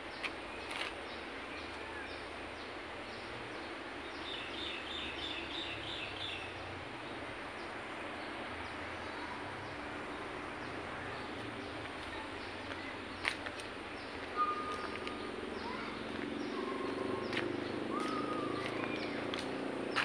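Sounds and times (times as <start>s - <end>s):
small bird chirping: 10.6s - 20.0s.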